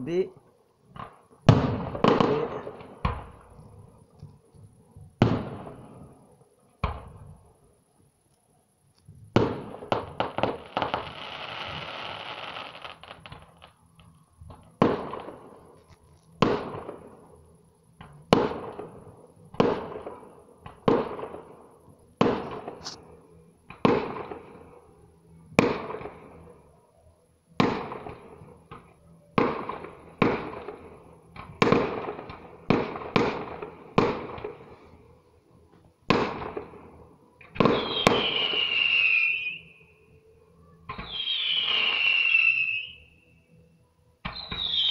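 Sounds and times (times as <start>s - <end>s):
firework bangs: 0.9s - 3.9s, 5.2s - 6.2s, 9.2s - 13.8s, 14.5s - 15.8s, 16.4s - 23.0s, 23.7s - 24.7s, 25.6s - 26.6s, 27.6s - 34.8s, 36.0s - 36.8s, 37.4s - 39.6s, 40.9s - 43.0s, 44.3s - 44.9s
firework crackling hiss: 0.9s - 25.0s, 27.6s - 35.2s, 36.1s - 39.7s, 40.9s - 43.1s, 44.3s - 44.9s
falling firework whistle: 9.4s - 13.8s, 37.4s - 43.4s, 44.2s - 44.9s.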